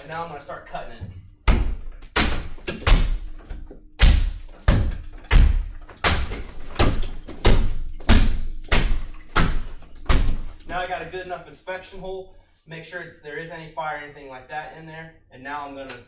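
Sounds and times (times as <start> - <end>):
maul chopping into plaster wall: 1.4 - 10.7.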